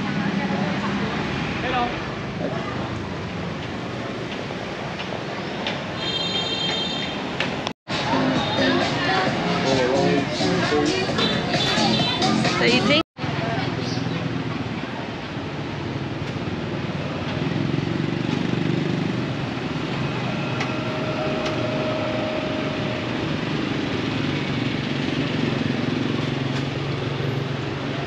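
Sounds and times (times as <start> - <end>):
motorbike and car engines: 0.0 - 6.0, 7.1 - 28.0
high held tone: 19.9 - 24.0.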